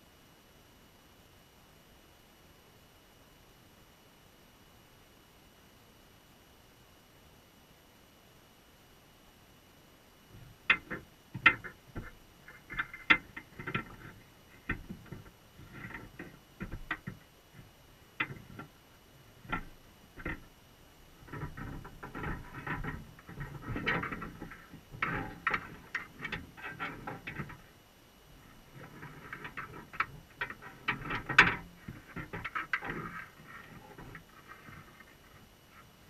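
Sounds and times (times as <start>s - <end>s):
crab legs clicking on wire mesh: 10.4s - 18.8s, 21.2s - 27.7s, 28.4s - 35.4s.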